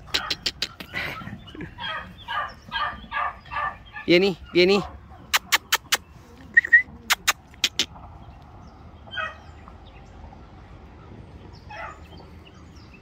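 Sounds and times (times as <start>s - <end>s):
person calling a puppy: 4.0s - 7.9s.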